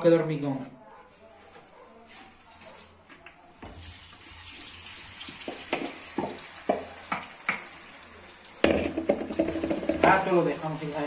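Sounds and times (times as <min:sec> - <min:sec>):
sizzling in hot oil: 0:03.8 - 0:11.0
slices knocking into pan: 0:05.4 - 0:07.8, 0:08.6 - 0:10.3.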